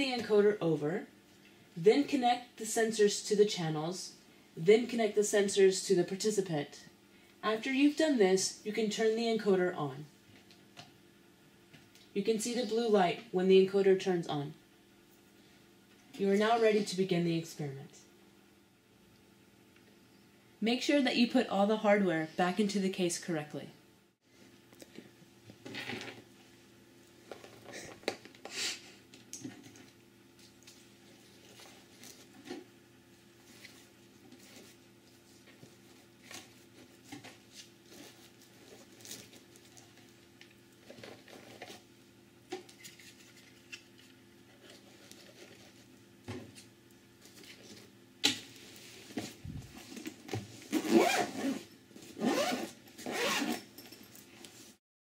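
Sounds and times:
faint steady hum: 0.0 - 54.8
zipper rasping shut: 50.6 - 53.8.

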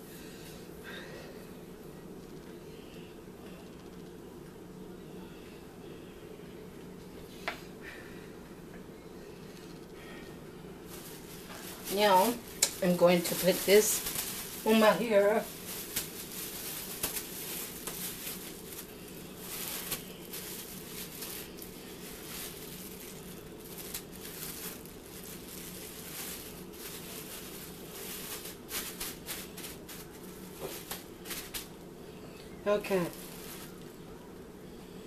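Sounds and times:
steady low hum: 0.0 - 35.0
plastic shower cap crinkling: 10.9 - 31.7, 33.0 - 33.9.

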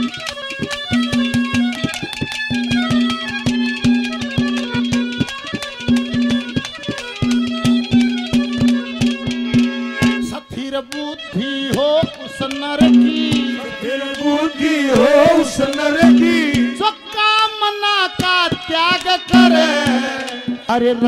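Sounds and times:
hand drums: 0.0 - 21.0
held accompanying note: 0.0 - 21.0
man singing: 10.3 - 21.0.

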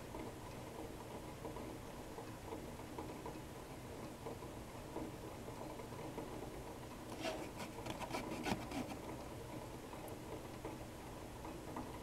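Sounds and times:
glass thermometer rubbing and clicking: 7.1 - 9.0.

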